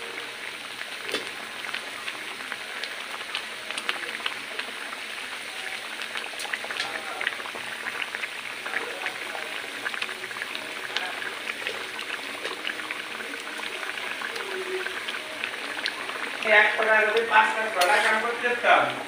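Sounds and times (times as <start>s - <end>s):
curry sauce boiling and popping: 0.0s - 19.0s.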